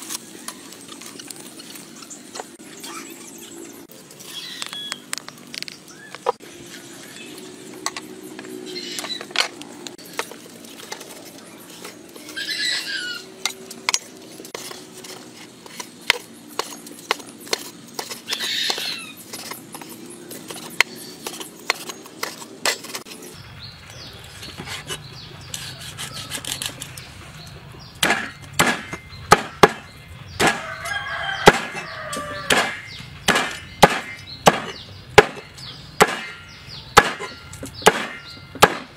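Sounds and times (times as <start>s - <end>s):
cleaver chopping on cutting board: 28.0s - 30.6s, 31.4s - 31.8s, 32.5s - 36.4s.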